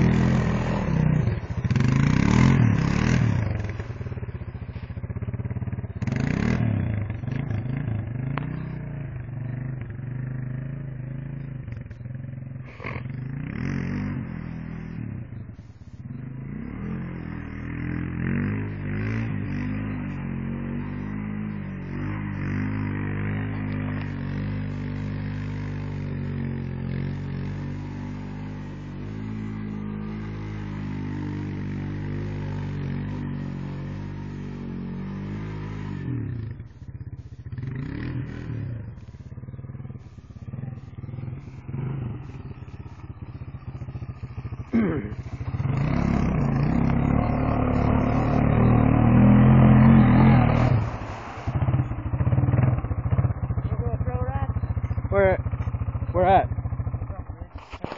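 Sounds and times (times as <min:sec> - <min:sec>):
atv engine revving: 0:00.0 - 0:57.9.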